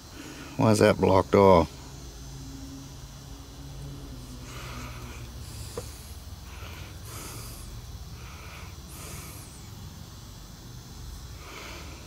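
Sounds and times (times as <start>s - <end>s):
close breathing: 0.0s - 0.6s, 4.2s - 10.2s, 11.2s - 12.0s
low steady hum: 0.0s - 12.0s.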